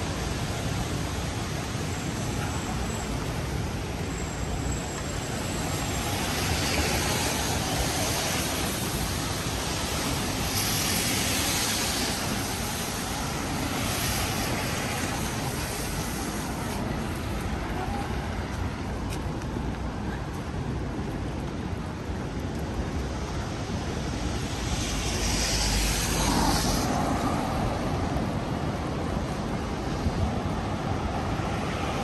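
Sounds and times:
tyres hissing on wet road: 0:00.0 - 0:20.8, 0:22.4 - 0:32.0.

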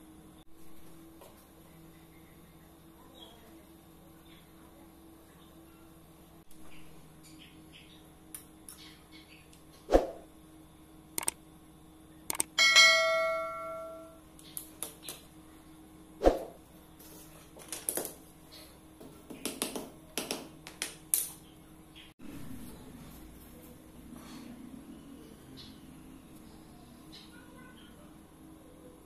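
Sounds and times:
ringing metallic clang: 0:12.6 - 0:14.2.

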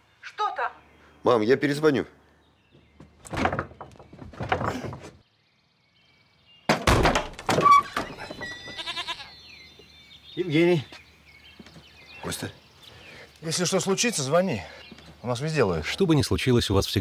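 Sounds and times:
loud thud: 0:06.7 - 0:07.6
goat bleating: 0:08.6 - 0:09.4.

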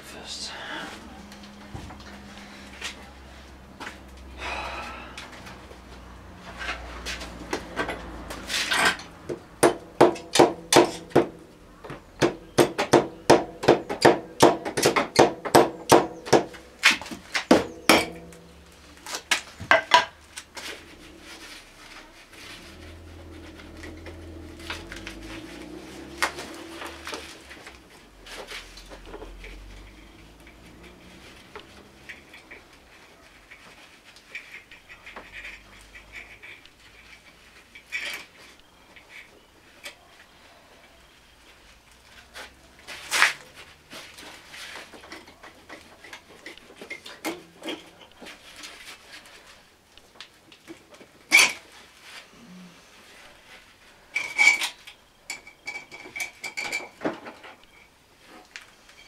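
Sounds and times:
handling and scraping noises: 0:00.0 - 0:59.0
sharp knocks on engine parts: 0:08.8 - 0:18.4.

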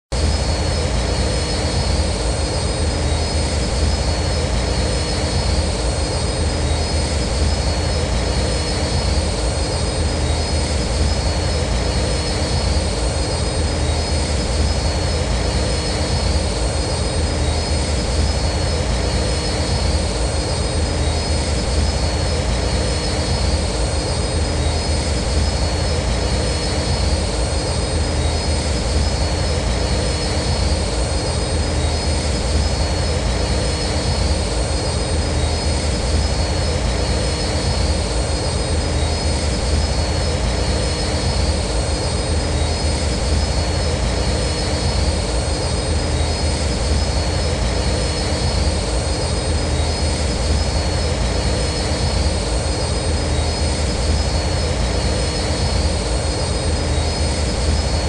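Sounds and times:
high-pitched engine whines: 0:00.1 - 0:58.0
starfighter engine roar: 0:00.2 - 0:58.0.

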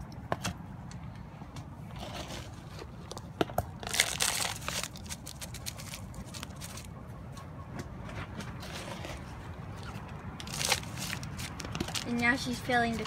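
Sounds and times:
cup scooping soil: 0:01.8 - 0:03.2, 0:08.4 - 0:13.0
plastic crinkling: 0:03.8 - 0:06.9, 0:09.8 - 0:13.0.

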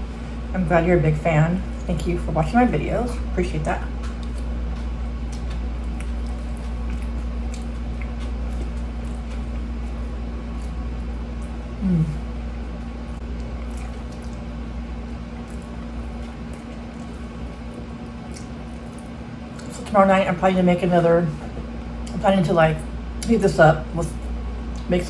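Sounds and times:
steady low hum: 0:00.0 - 0:25.0
soft chewing: 0:03.8 - 0:20.0.

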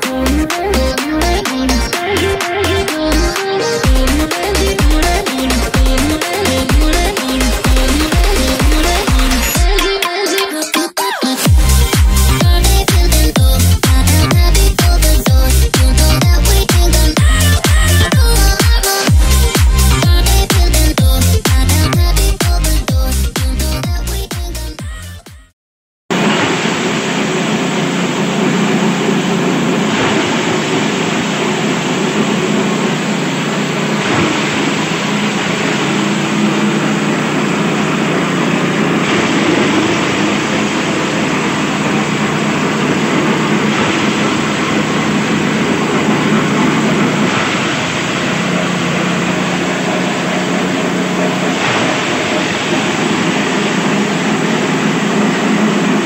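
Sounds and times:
chopper engine drone: 0:00.0 - 0:10.0, 0:11.4 - 0:24.2, 0:26.1 - 0:56.0
blades shredding stalks: 0:26.1 - 0:56.0.

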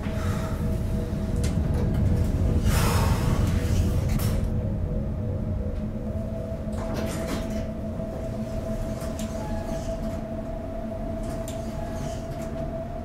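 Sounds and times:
elevator car rumble and hum: 0:00.0 - 0:13.0.

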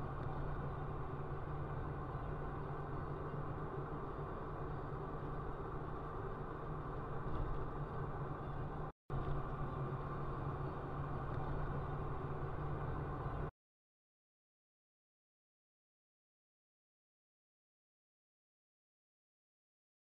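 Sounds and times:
car engine hum inside cabin: 0:00.0 - 0:13.5.

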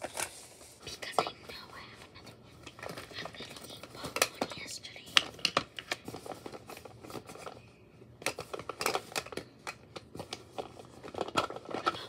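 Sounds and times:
small objects rustling and clicking: 0:08.2 - 0:12.0.

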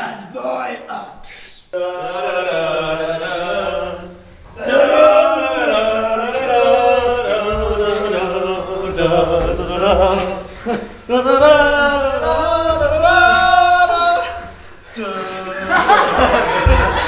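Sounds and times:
man singing long notes: 0:01.7 - 0:16.6.

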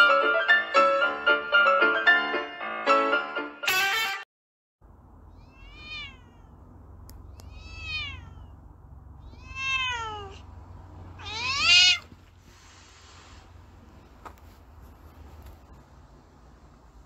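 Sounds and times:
cat meowing: 0:05.3 - 0:06.6, 0:07.2 - 0:08.6, 0:09.2 - 0:10.5, 0:11.1 - 0:12.2.

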